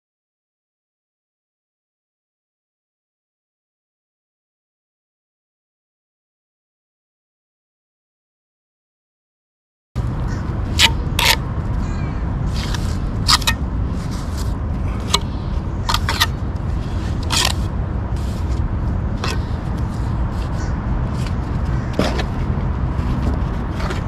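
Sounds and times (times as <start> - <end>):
trowel scraping and tapping: 10.8 - 11.4, 12.6 - 18.6.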